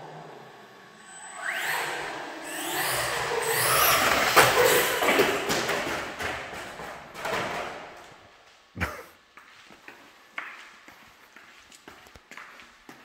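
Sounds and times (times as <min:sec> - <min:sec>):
electric toy car motor whining: 0:00.0 - 0:05.2.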